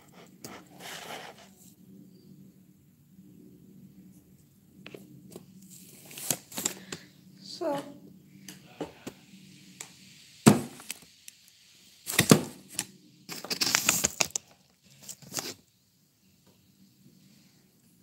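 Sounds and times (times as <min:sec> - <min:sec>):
rustling scrape: 0:00.0 - 0:01.8, 0:12.1 - 0:15.6
small hard objects clicking: 0:13.3 - 0:15.6.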